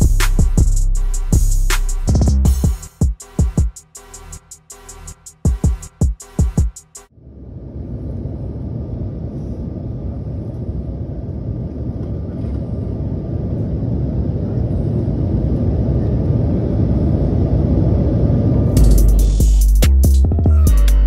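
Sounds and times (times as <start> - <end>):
airliner cabin engine rumble: 7.2 - 19.4.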